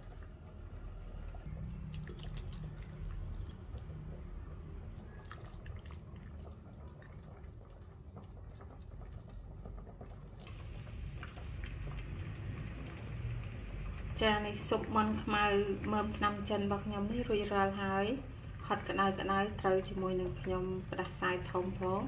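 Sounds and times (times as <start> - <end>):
soup simmering: 0.0 - 21.7
bubbling hiss: 0.8 - 16.7.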